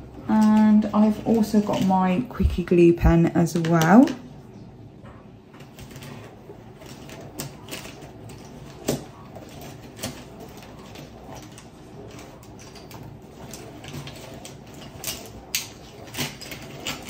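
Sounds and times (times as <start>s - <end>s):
pens and pencils clicking: 3.4s - 4.2s, 6.8s - 17.0s.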